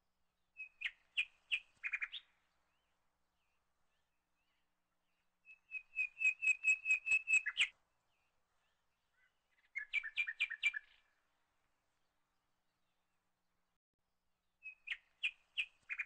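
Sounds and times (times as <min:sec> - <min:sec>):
bird chirping: 0:00.4 - 0:11.2, 0:14.6 - 0:16.0.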